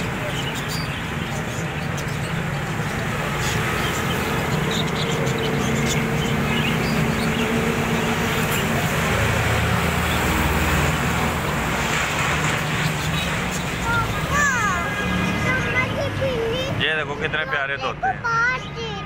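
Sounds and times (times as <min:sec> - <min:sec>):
budgerigars chirping: 0:00.0 - 0:09.2
street traffic hum: 0:00.0 - 0:19.0.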